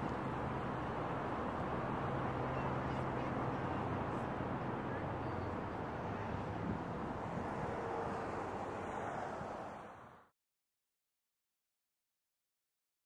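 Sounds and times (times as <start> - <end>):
distant traffic rumble: 0.0 - 10.0.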